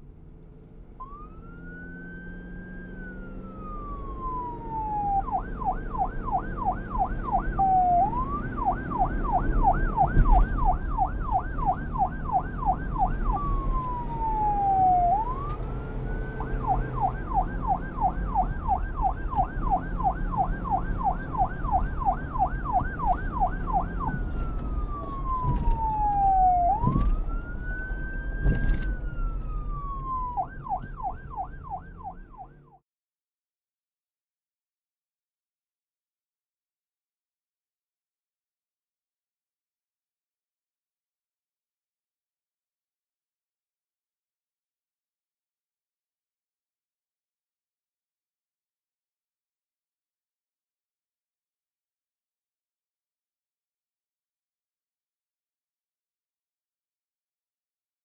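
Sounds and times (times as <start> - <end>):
siren wailing and yelping: 1.0 - 32.8.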